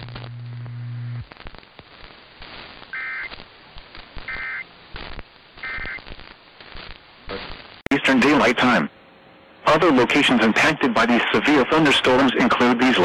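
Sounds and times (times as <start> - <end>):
radio static crackling: 0.0 - 8.9, 9.7 - 13.0.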